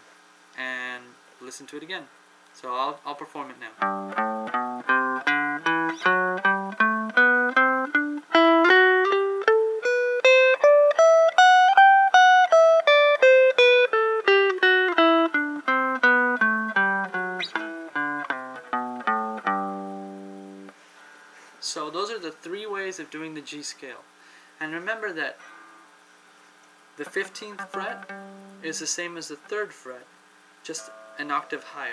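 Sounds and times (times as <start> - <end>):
electric guitar playing a scale: 3.8 - 21.4, 27.0 - 29.0, 30.7 - 31.9.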